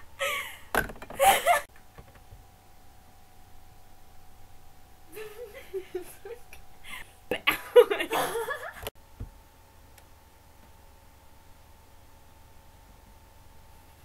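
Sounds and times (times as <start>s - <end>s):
person giggling and laughing: 0.0s - 1.7s, 5.1s - 8.9s.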